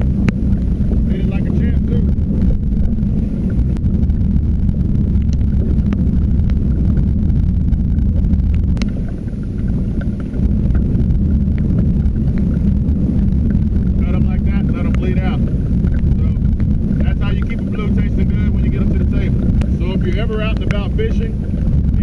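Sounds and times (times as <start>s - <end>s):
faint clicks: 0.0s - 22.0s
wind buffeting microphone: 0.0s - 22.0s.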